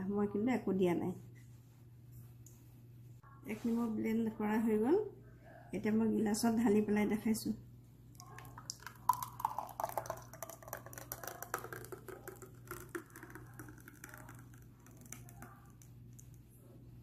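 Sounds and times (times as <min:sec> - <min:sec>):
smoothie pouring into a glass: 0:08.2 - 0:16.4.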